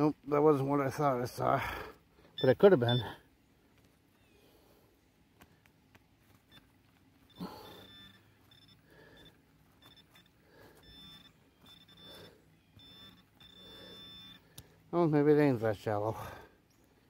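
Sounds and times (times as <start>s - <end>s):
pinpointer high steady tone: 0.8s - 3.3s, 6.2s - 16.4s.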